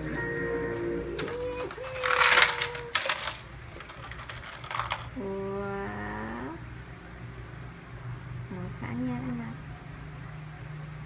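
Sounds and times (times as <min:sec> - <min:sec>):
plastic shapes rattling in toy: 0:01.2 - 0:05.2
plastic toy being handled: 0:01.2 - 0:05.2.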